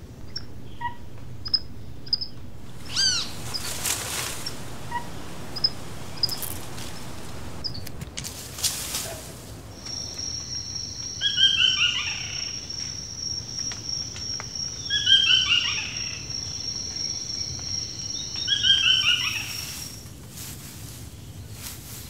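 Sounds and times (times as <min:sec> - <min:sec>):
bird singing: 0:00.0 - 0:08.0, 0:09.6 - 0:19.7
high-pitched insect drone: 0:00.3 - 0:07.9.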